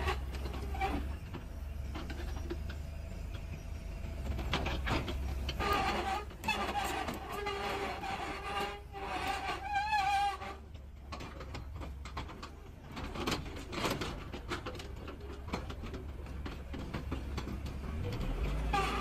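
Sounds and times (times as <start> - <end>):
hydraulic whine: 0.0 - 10.9
excavator diesel engine humming: 0.0 - 19.0.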